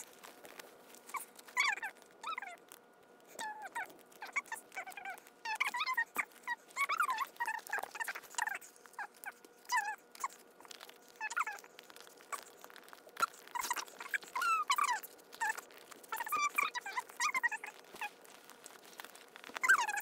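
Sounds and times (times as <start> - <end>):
sped up squeaky voice chatter: 1.0 - 2.6, 3.3 - 20.0.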